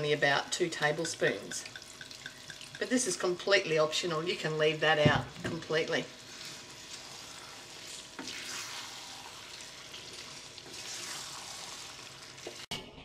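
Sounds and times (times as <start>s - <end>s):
wooden spoon stirring: 0.0s - 3.8s, 4.9s - 11.4s
food sizzling in a frying pan: 1.0s - 3.7s, 4.6s - 12.7s.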